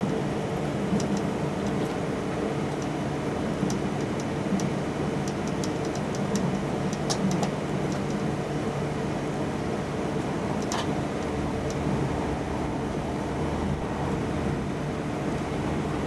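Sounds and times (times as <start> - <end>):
train running rumble: 0.4 - 16.0
light high ticks: 3.6 - 8.2.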